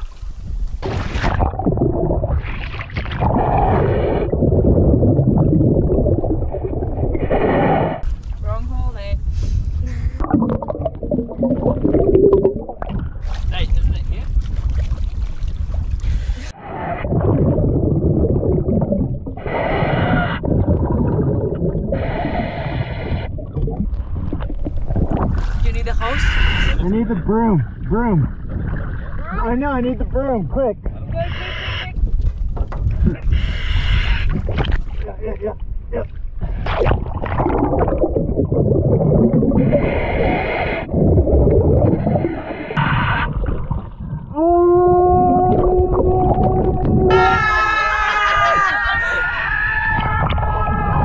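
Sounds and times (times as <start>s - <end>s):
exhaled bubbles rumbling: 0.0s - 31.2s, 32.0s - 51.0s
diver inhaling through regulator: 9.3s - 10.3s, 19.4s - 20.5s, 21.9s - 23.4s, 39.6s - 41.0s
long pitched wail: 44.3s - 51.0s.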